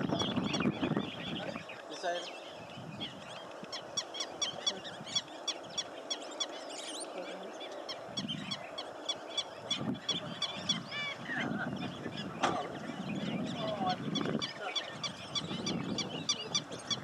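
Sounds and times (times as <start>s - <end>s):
lower bird calls: 0.0s - 17.0s
rising bird calls: 0.0s - 17.0s.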